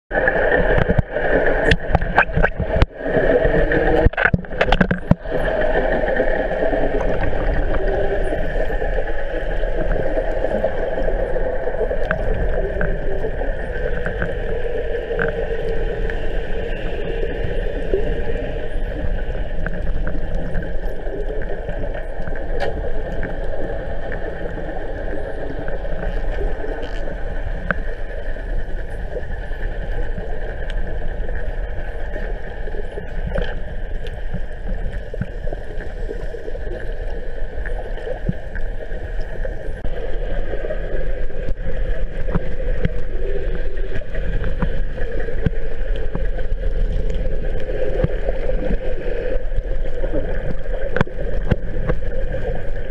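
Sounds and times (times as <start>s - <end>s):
hollow underwater drone: 0.1s - 52.9s
faint clicks: 18.8s - 39.9s.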